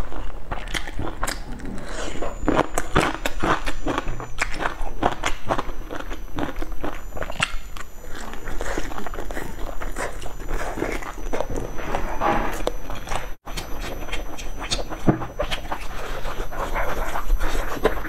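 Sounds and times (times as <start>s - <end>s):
crunching of crispy food: 0.0s - 11.7s.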